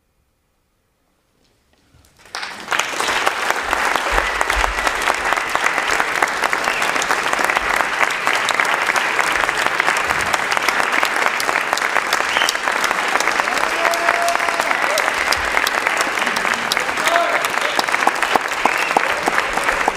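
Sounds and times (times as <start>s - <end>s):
audience applauding: 2.1s - 19.9s.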